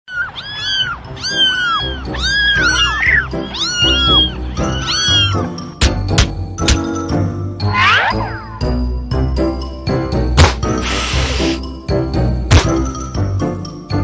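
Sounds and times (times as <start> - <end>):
cat meowing: 0.1 - 5.6
background music: 0.4 - 14.0.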